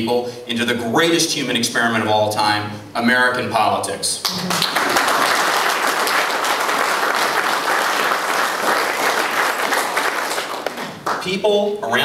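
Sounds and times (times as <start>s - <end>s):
crowd applauding: 4.2s - 11.3s.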